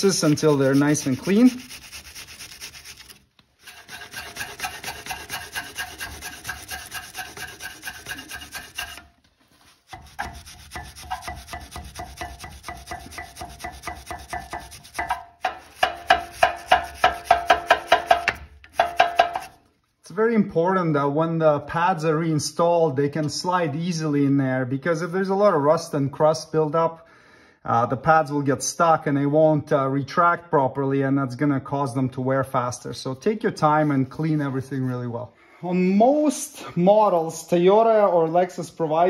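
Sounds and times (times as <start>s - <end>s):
wire brush scrubbing metal: 0.0s - 19.6s.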